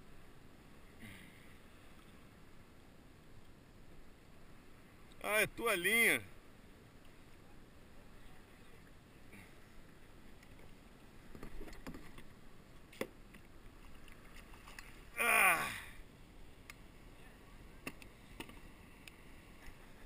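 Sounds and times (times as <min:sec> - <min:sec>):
water lapping around kayak: 0:00.0 - 0:05.2, 0:06.2 - 0:20.0.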